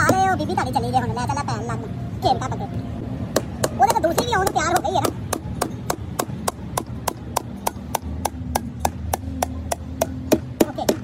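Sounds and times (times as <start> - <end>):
hammer tapping: 3.4 - 11.0.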